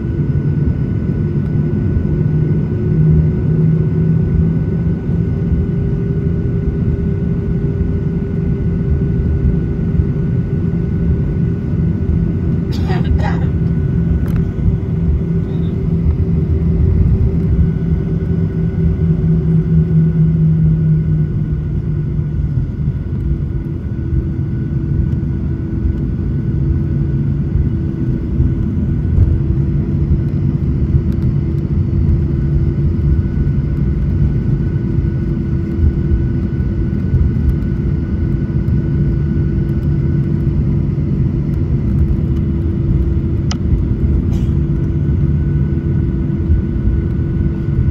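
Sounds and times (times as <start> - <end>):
jet engines rumbling in cabin: 0.0 - 47.9.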